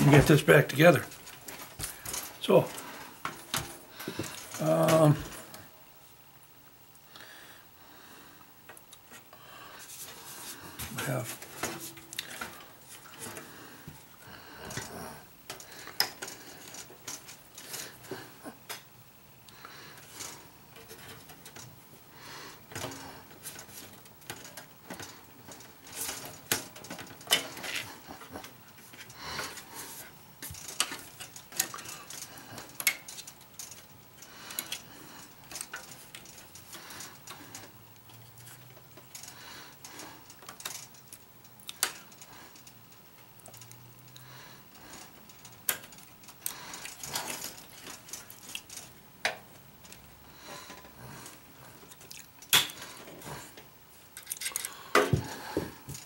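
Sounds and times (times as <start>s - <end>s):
metal parts clicking and tapping: 45.0s - 50.1s, 51.9s - 52.8s, 53.6s - 56.0s.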